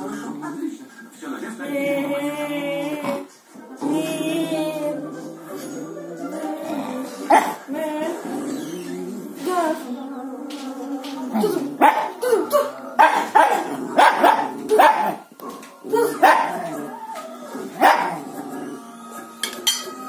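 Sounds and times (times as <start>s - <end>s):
dog barking: 7.3s - 7.6s, 11.4s - 15.3s, 15.9s - 16.8s, 17.8s - 18.2s.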